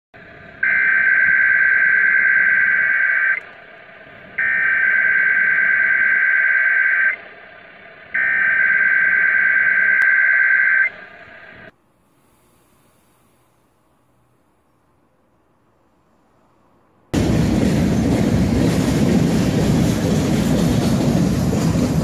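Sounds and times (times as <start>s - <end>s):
radio hiss: 0.2s - 13.8s
two-tone digital data bursts: 0.6s - 3.4s, 4.4s - 7.2s, 8.2s - 11.7s.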